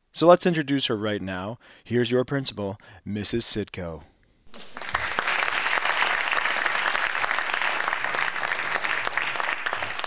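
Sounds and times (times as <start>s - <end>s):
audience applauding: 4.5s - 10.0s.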